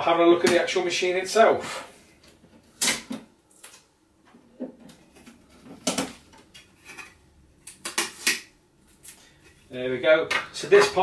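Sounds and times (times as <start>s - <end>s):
plastic parts clicking and knocking: 4.6s - 7.1s.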